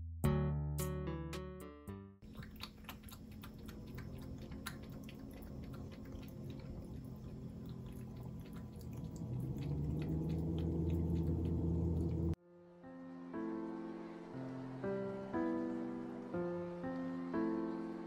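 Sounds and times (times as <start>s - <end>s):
cat lapping water: 2.2s - 12.4s
low steady hum: 2.2s - 12.4s.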